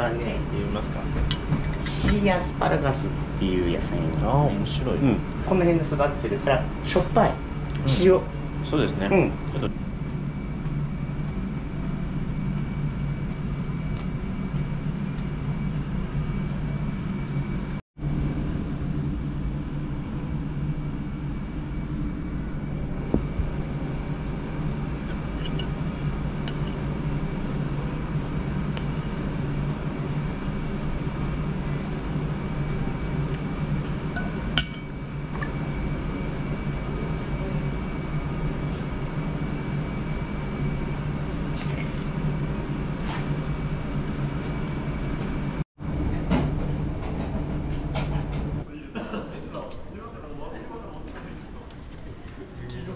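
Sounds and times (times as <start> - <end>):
cutlery clinking on china plate: 34.2 - 34.9.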